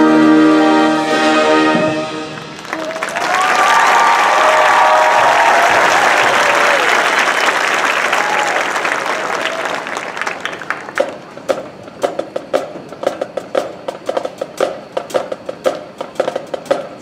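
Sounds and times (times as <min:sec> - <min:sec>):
crowd applause: 0:02.3 - 0:11.4
marching percussion beat: 0:11.0 - 0:17.0.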